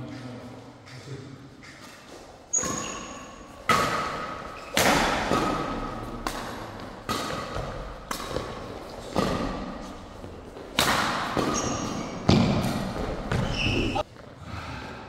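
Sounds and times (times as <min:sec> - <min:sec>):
rackets striking shuttlecock: 0:02.6 - 0:14.0.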